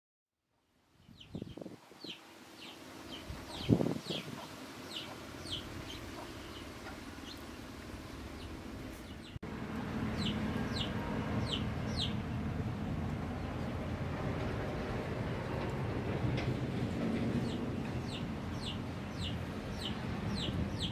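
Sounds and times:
birds chirping: 0:01.0 - 0:09.4, 0:10.1 - 0:13.9, 0:17.1 - 0:20.9.

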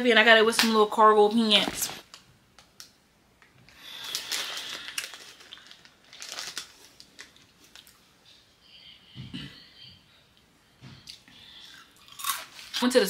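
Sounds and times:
plastic wrapper crinkling: 0:02.8 - 0:08.0.

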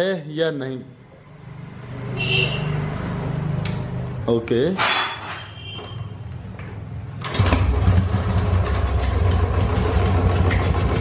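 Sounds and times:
motorcycle engine starting and idling: 0:07.2 - 0:11.0
engine ticking at idle: 0:08.2 - 0:11.0.

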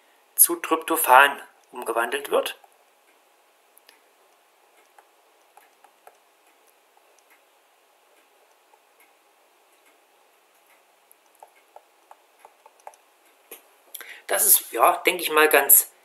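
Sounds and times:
stylus tapping on tablet: 0:04.8 - 0:06.2, 0:11.2 - 0:13.0.

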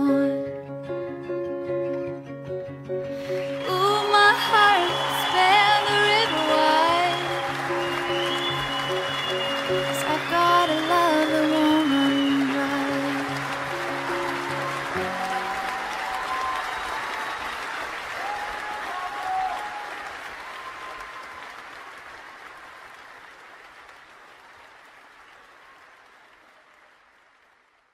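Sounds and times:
music: 0:00.0 - 0:18.1
crowd applauding: 0:03.0 - 0:27.9.

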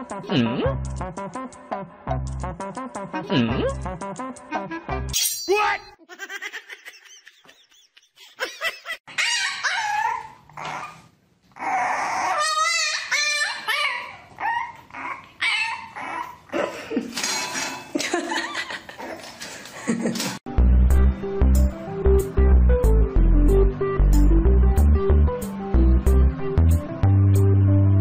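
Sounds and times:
puppies whining and yipping: 0:09.1 - 0:16.6.

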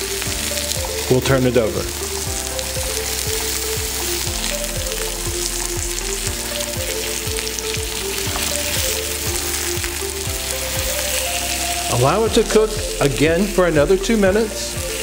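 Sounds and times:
background music with steady beat: 0:00.0 - 0:15.0
fish sizzling in hot oil: 0:00.0 - 0:15.0.

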